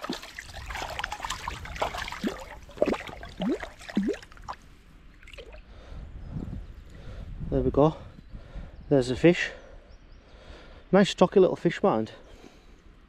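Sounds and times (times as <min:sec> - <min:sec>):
water plopping and splashing: 0:00.0 - 0:05.6
water lapping: 0:00.0 - 0:05.9.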